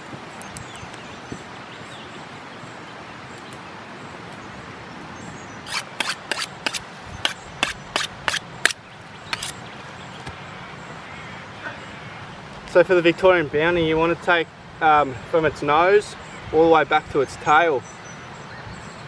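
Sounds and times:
steady outdoor hiss: 0.0 - 19.0
sharp scraping strokes: 5.7 - 9.6.

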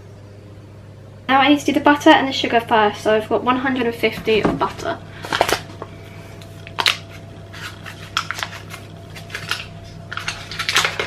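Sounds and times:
butter paper wrapping crinkling: 5.2 - 5.8, 6.5 - 11.0.

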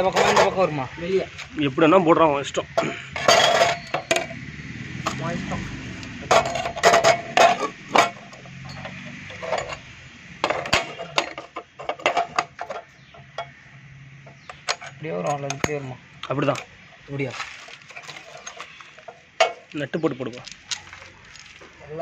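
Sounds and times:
metal clinks and knocks: 0.0 - 0.6, 2.8 - 4.4, 6.1 - 15.8, 16.4 - 21.8.

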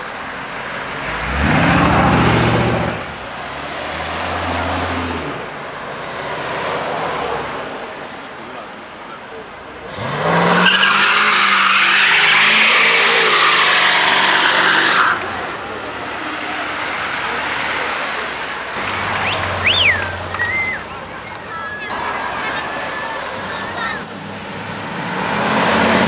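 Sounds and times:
car engine revving: 0.7 - 7.5, 9.8 - 21.1, 21.9 - 26.0
tyres squealing: 10.0 - 24.1
sharp high whistles: 19.2 - 20.9.

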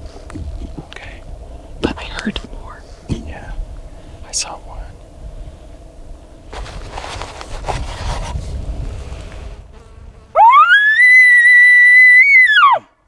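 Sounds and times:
elk call whistle: 10.4 - 12.9.

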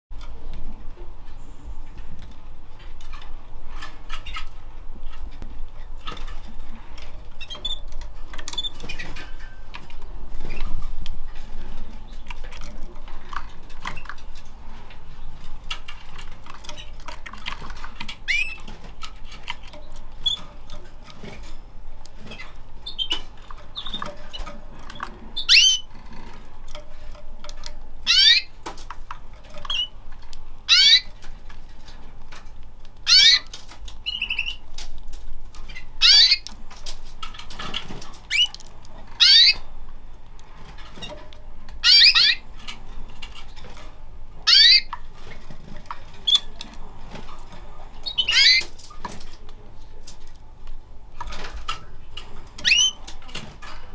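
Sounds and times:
canaries calling: 11.4 - 31.9, 33.0 - 34.9, 35.6 - 39.8, 40.6 - 49.2, 51.3 - 53.9.

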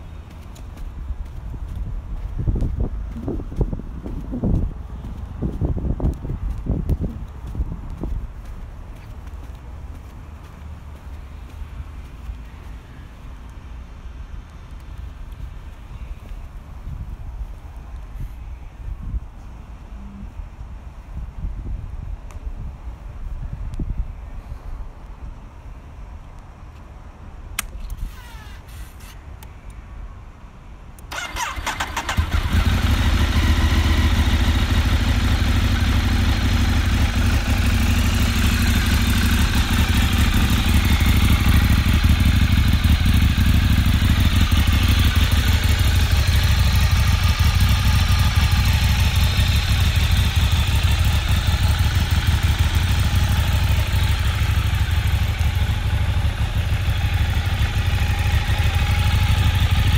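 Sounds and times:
motorcycle engine starting and idling: 27.6 - 29.1, 31.0 - 59.9.

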